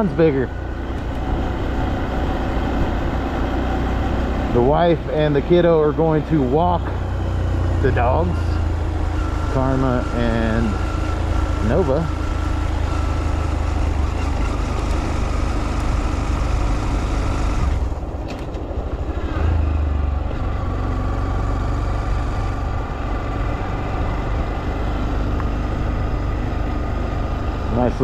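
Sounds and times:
motorbike engine running: 0.0 - 28.0
wind rushing over microphone: 0.8 - 4.6.

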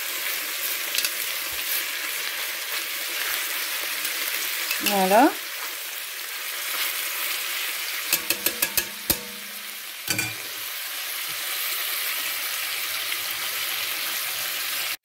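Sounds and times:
meat sizzling in butter: 0.0 - 15.0
metal tongs clicking: 8.1 - 10.5
tongs knocking against pot: 8.1 - 10.6.

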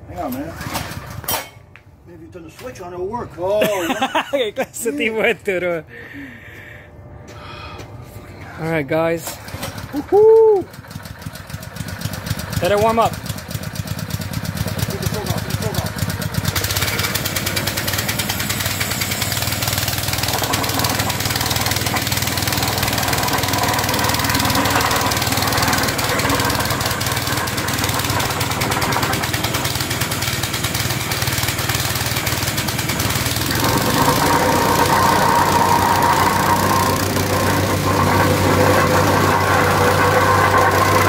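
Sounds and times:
plate compactor engine running: 0.3 - 1.3, 9.2 - 41.0.

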